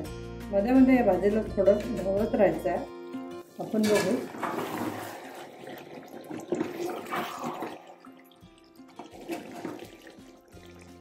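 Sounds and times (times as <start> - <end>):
liquid gravy moving: 3.5 - 11.0
spoon stirring in metal pot: 3.6 - 7.3.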